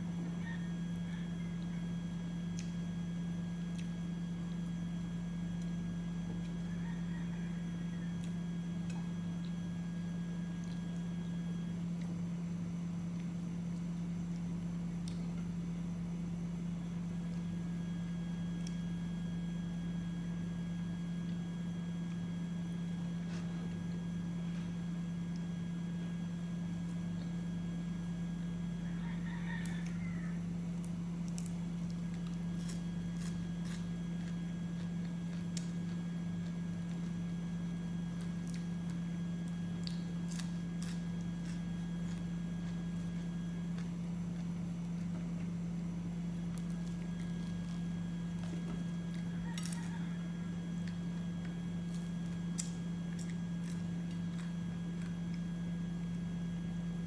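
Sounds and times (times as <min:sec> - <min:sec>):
steady low hum: 0:00.0 - 0:57.0
fried chicken tearing and chewing: 0:23.2 - 0:57.0.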